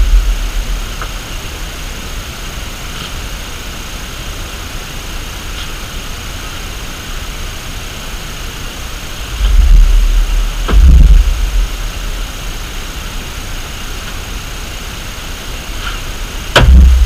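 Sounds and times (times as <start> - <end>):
low rumble: 0.0 - 2.1, 9.2 - 13.1, 16.5 - 17.0
outdoor background hiss: 0.0 - 17.0.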